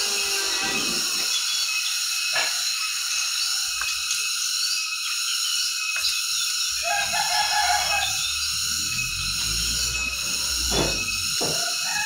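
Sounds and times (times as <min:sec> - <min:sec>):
high-pitched background din: 0:00.0 - 0:12.0
rooster crowing: 0:06.7 - 0:10.4, 0:11.3 - 0:12.0.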